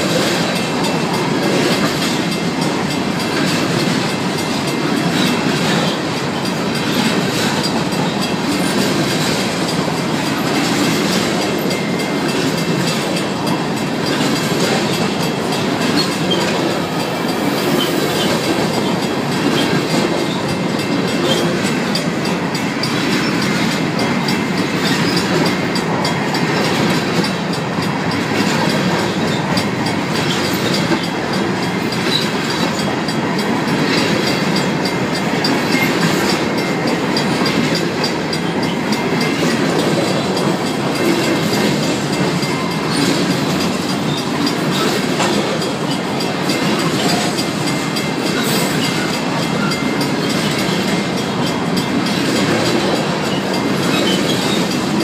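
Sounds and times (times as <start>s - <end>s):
crossing bells ringing: 0.0s - 55.0s
freight train rolling past: 0.0s - 55.0s
wheels clicking over rail joints: 0.0s - 55.0s.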